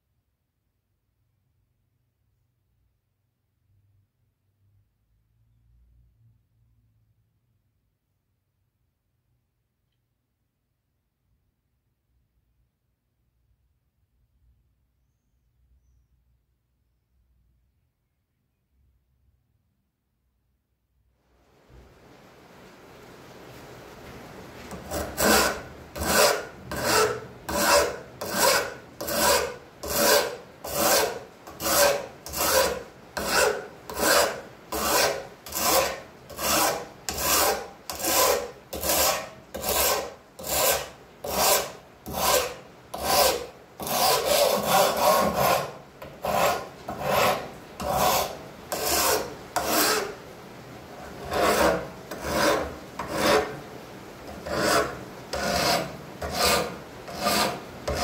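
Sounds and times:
hand file scraping rusty metal: 24.7 - 50.2, 51.0 - 53.6, 54.3 - 58.0.

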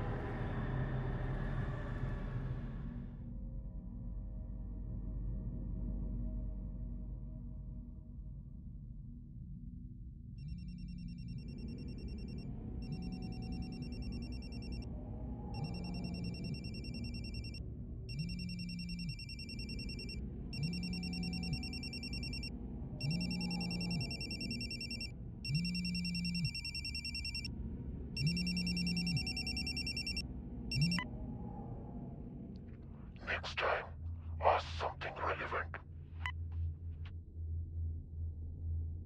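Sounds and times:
mobile phone ringtone: 23.1 - 27.5, 28.3 - 30.2.

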